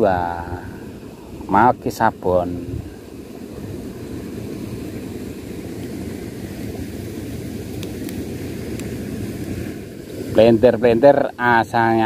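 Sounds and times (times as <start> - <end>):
wind on microphone: 2.5 - 10.6.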